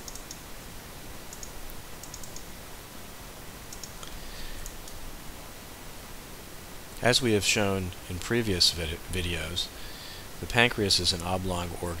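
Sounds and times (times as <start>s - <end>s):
light quick clicks: 0.0s - 0.4s, 1.3s - 2.5s, 3.7s - 5.0s
steady background hiss: 0.0s - 12.0s.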